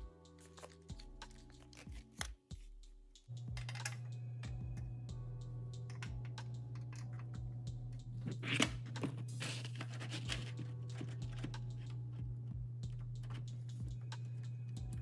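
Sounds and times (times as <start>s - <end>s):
steady low hum: 3.3s - 15.0s
plastic cables clicking and rattling: 3.5s - 4.0s, 8.3s - 12.0s.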